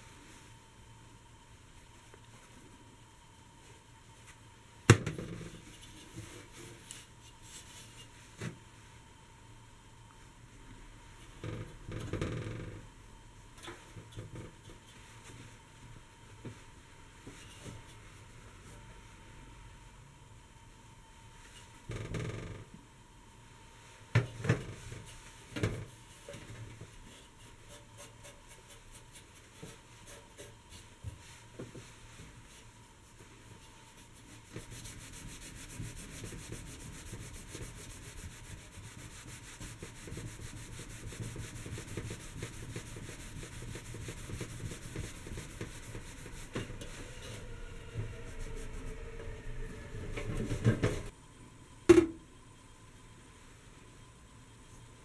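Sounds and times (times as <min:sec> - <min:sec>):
cloth rubbing on copper: 0:27.3 - 0:49.0.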